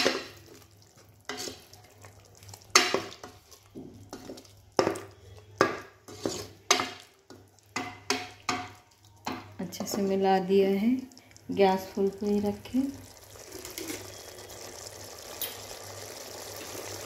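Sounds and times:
oil sizzling: 0:00.0 - 0:17.0
spoon scraping pot: 0:01.2 - 0:10.2.

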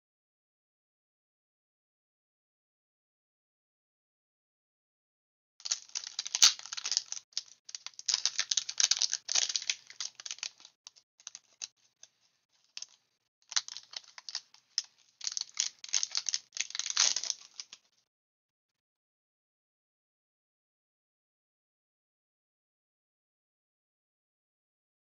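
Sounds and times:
foil wrapper crinkling and tearing: 0:05.6 - 0:11.7, 0:12.8 - 0:17.8.

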